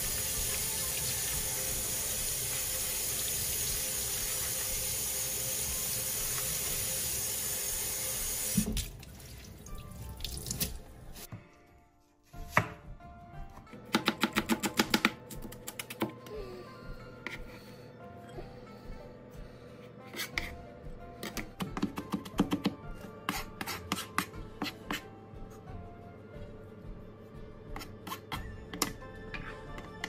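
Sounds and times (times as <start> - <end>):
knife chopping on cutting board: 12.4 - 12.8, 13.8 - 16.1, 21.2 - 25.1.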